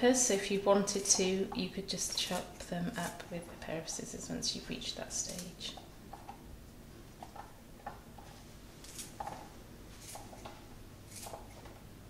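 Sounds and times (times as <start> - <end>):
scissors snipping: 2.1 - 3.3, 5.2 - 5.6, 8.8 - 9.2, 10.0 - 11.7.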